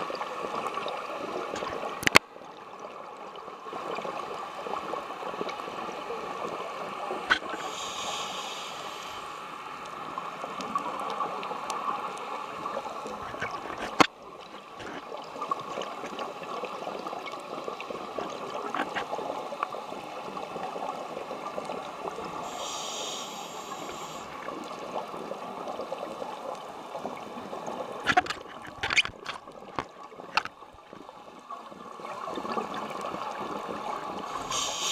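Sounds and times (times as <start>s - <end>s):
underwater rush: 0.0s - 34.9s
scuba exhaust bubbles hissing: 7.4s - 10.9s, 16.7s - 24.6s, 32.0s - 34.9s.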